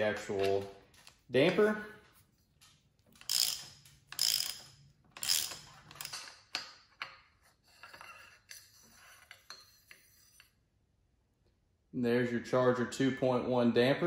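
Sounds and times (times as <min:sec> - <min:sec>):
ratchet wrench ratcheting: 0:03.1 - 0:06.8.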